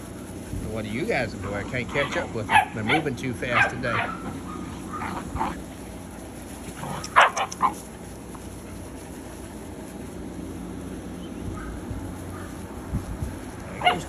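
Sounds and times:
puppies barking: 1.2 - 9.8, 10.8 - 12.9, 13.6 - 14.0.

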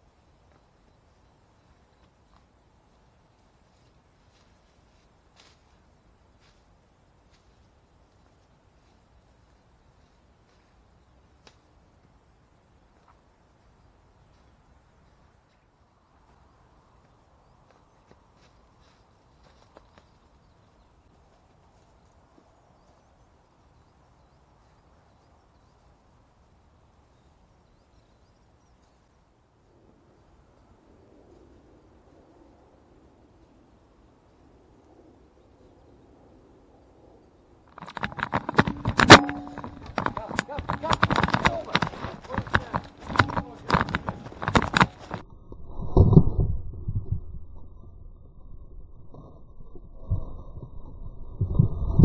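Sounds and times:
low steady background noise: 0.0 - 45.5
sharp clicks and knocks: 37.7 - 45.2
camera rubbing against jacket: 37.8 - 45.2.

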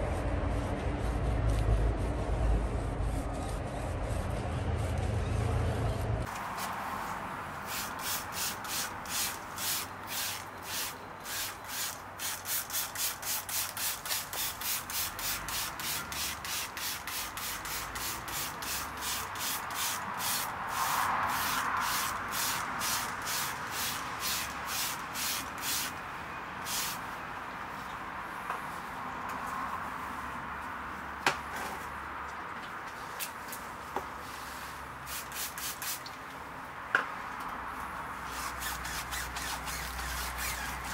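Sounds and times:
spray bottle squirting: 7.6 - 25.9, 26.7 - 27.0, 35.1 - 36.1, 38.3 - 40.9.

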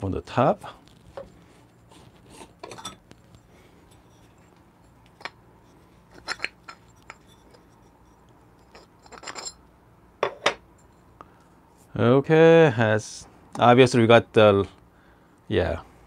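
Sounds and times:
light metal clinks and scrapes: 1.8 - 11.2.

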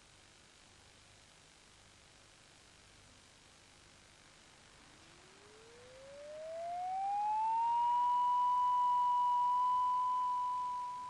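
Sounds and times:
rising electronic tone: 5.2 - 11.0.

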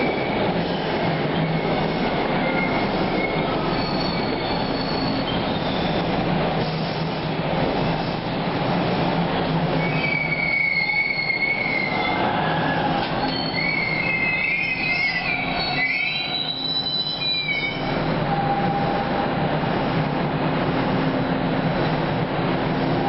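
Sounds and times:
steel wheels squealing on rails: 0.0 - 7.2, 9.0 - 19.3
subway train rumbling on track: 0.0 - 23.0.

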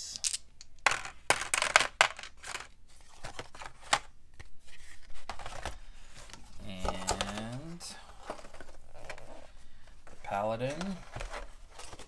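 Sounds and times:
dice rattling in a hand: 0.0 - 2.3
game pieces tapping and handling: 0.0 - 4.5.

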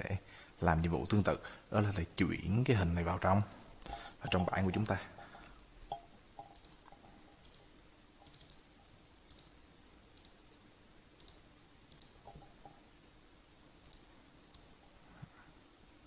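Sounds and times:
computer mouse clicks: 5.9 - 8.6, 9.3 - 10.4, 11.2 - 12.8, 13.8 - 14.7.

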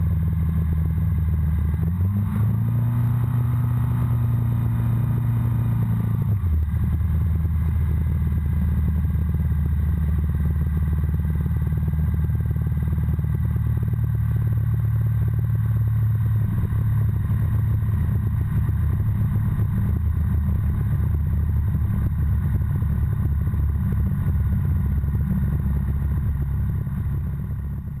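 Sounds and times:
aircraft engine and propeller idling: 6.0 - 28.0.

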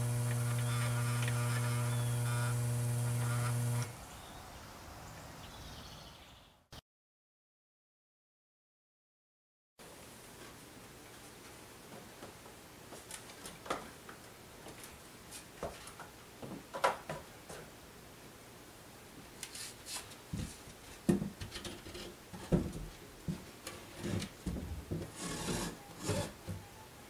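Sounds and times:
hatch panel scraping: 25.0 - 26.4.

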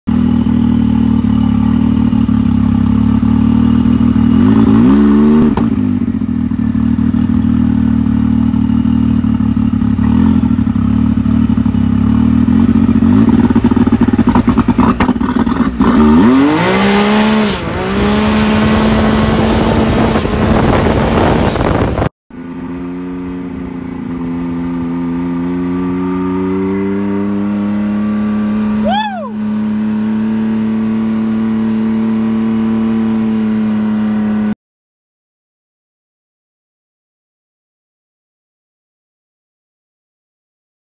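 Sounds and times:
engine accelerating at full throttle: 0.1 - 34.6
engine idling and revving: 0.1 - 34.6.

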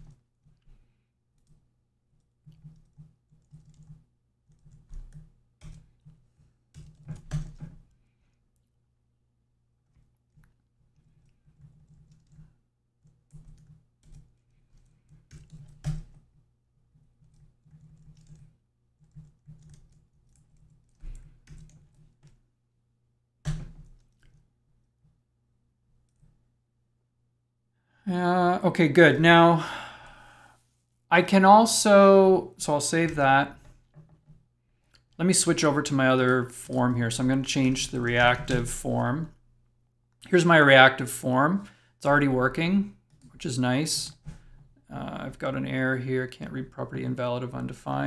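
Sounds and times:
typing on keyboard: 2.4 - 7.8, 10.3 - 16.3, 16.9 - 22.4.

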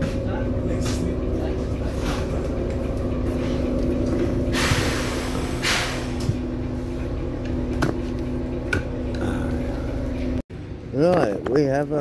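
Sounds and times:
bus engine idling: 0.0 - 12.0
air hissing from pneumatics: 4.5 - 6.4.

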